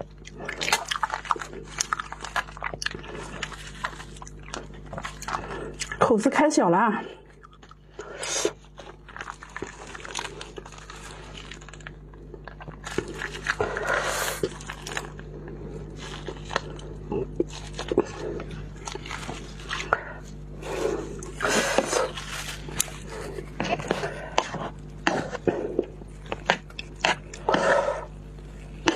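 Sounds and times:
plastic sachets crinkling: 0.6s - 6.1s, 7.4s - 25.0s.

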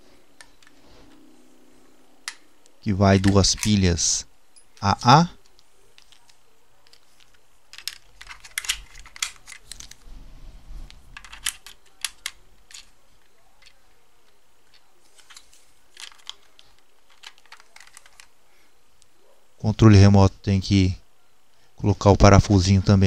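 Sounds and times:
batteries clicking into compartment: 3.2s - 3.8s, 4.6s - 10.0s, 11.2s - 13.8s, 14.7s - 18.3s.

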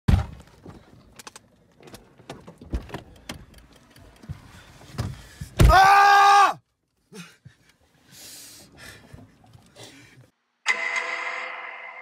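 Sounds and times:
clicks and rustling in car seat: 0.2s - 5.8s.

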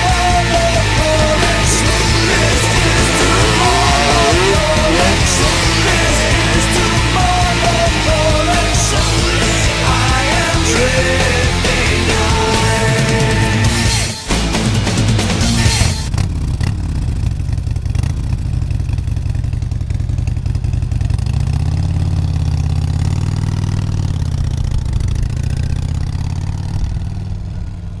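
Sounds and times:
heavy rock music: 0.0s - 16.2s
motorcycle engine revving: 0.0s - 28.0s.

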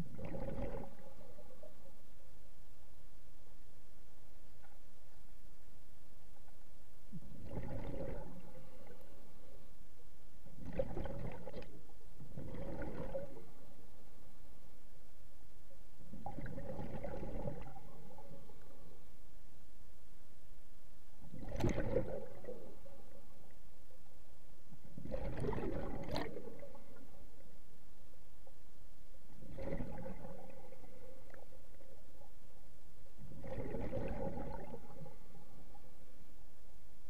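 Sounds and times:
gurgling bubble bursts: 0.0s - 1.8s, 7.2s - 9.0s, 10.6s - 13.6s, 16.1s - 18.5s, 21.3s - 23.0s, 25.0s - 27.0s, 29.4s - 31.5s, 33.3s - 35.3s.

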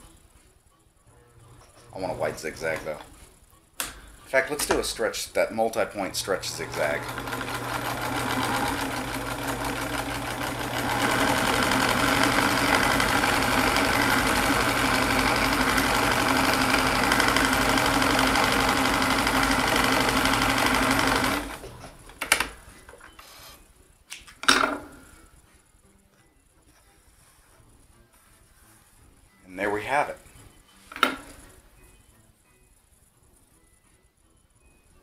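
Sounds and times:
sewing machine running: 6.2s - 21.8s.

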